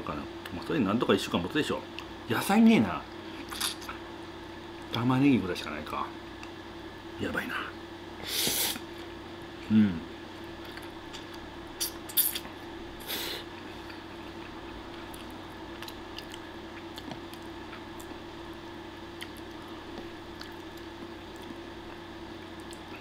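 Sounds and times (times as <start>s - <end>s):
steady low hum: 0.0s - 23.0s
quiet chewing: 13.6s - 18.2s, 19.2s - 23.0s.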